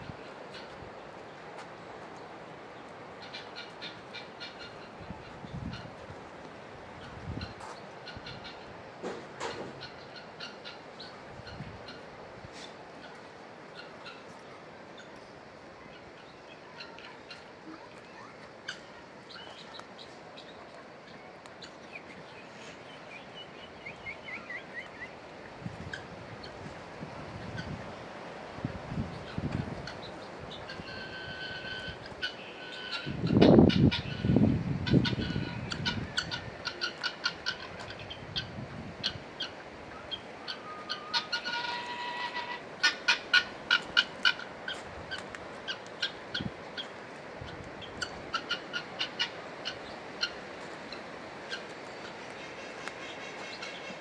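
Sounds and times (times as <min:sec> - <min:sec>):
steady background noise: 0:00.0 - 0:54.0
small birds chirping: 0:09.8 - 0:25.2
fowl calling sharp notes: 0:29.3 - 0:54.0.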